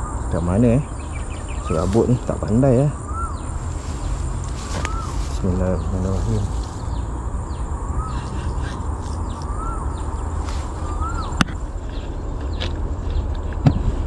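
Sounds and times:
whistled bird call: 0.0 - 3.6, 4.6 - 5.9, 7.9 - 11.4
high falling bird chirps: 0.0 - 14.0
steady low rumble: 0.0 - 14.0.

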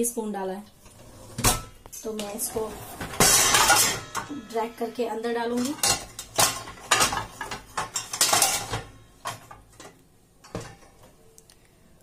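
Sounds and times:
metal dishes rattling in rack: 1.4 - 10.9.

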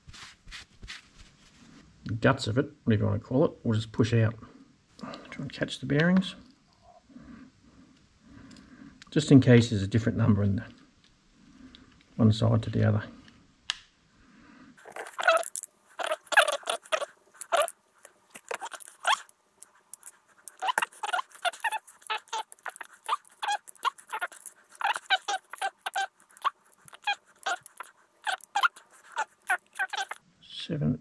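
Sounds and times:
ball bearings clicking on plastic: 14.8 - 30.2.

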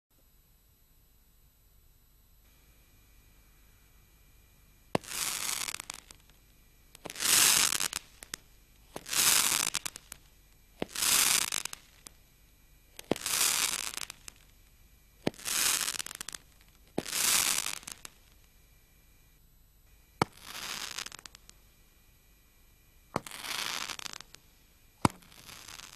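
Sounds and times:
crackling star burning: 2.4 - 25.9
roman candle pops: 4.9 - 12.2, 12.9 - 14.4, 15.2 - 18.2, 20.2 - 21.6, 23.1 - 24.4, 25.0 - 25.9.

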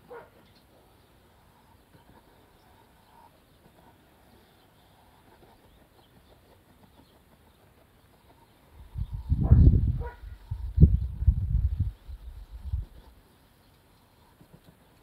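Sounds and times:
small ticks: 12.7 - 15.0.

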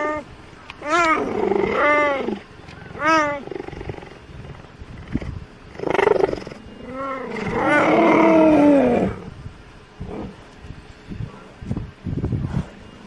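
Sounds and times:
cheetah calling: 0.0 - 9.4.

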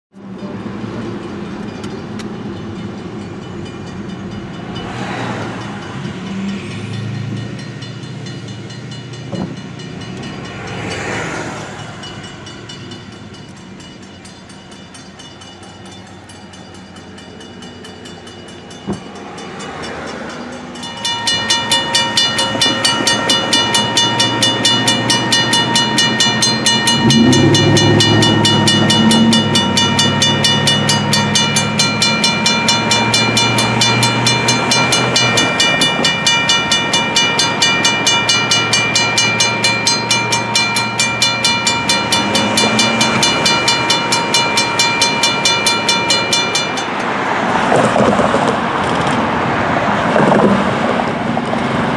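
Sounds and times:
railroad crossing bell ringing: 0.2 - 48.0
car road noise: 0.2 - 51.9
vehicles passing: 0.2 - 51.9
low drone: 20.9 - 47.0.

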